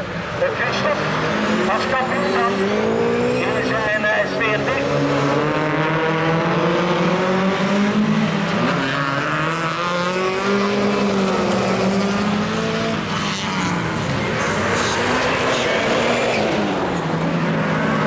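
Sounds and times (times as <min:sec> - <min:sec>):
racing cars revving past: 0:00.3 - 0:18.0.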